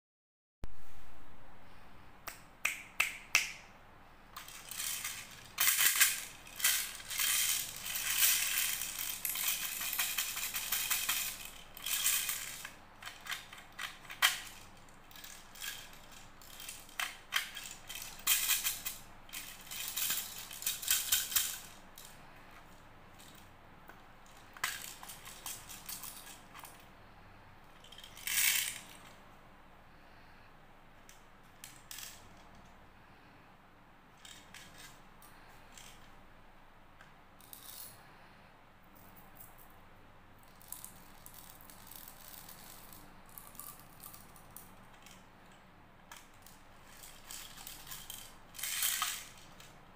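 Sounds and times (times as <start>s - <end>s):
candies rattling in plastic tubes: 4.4s - 22.2s, 24.3s - 26.8s, 27.8s - 29.1s, 40.5s - 45.2s, 46.1s - 49.8s
plastic parts clattering: 4.4s - 23.5s, 24.3s - 26.8s, 27.8s - 29.2s, 34.2s - 35.0s, 46.1s - 49.8s.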